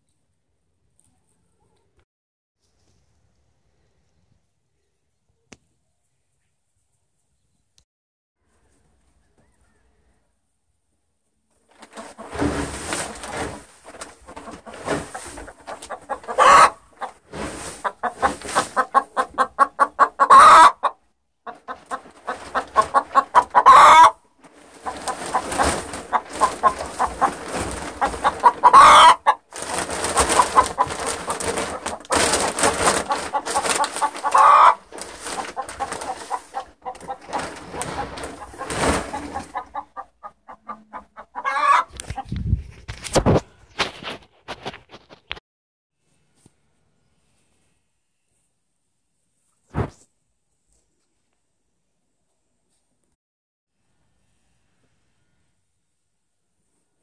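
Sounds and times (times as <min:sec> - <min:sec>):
hen clucking and squawking: 0:14.3 - 0:42.3.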